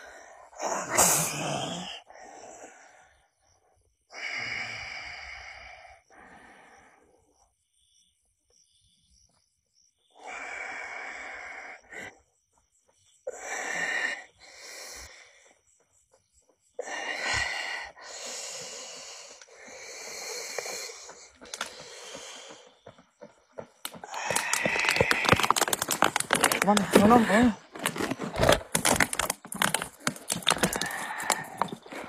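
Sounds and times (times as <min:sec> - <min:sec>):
person breathing heavily: 0:00.0 - 0:07.3, 0:16.8 - 0:23.0, 0:23.9 - 0:32.0.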